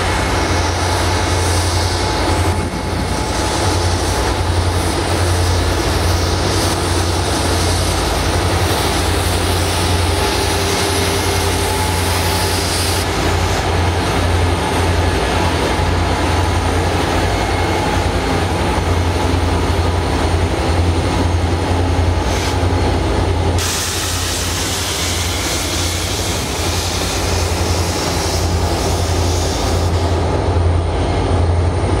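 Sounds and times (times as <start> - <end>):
locomotive diesel engines droning: 0.0 - 32.0
wheels rumbling on rail: 0.0 - 32.0.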